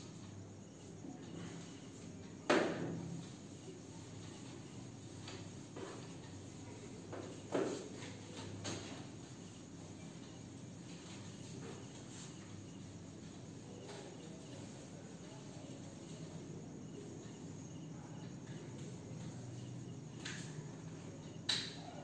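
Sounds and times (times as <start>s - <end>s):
insects chirping: 0.0s - 22.0s.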